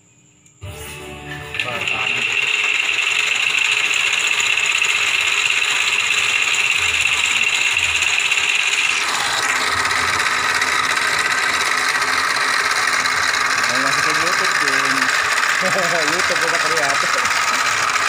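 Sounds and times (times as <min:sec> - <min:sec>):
lathe motor whirring hum: 0:00.6 - 0:18.0.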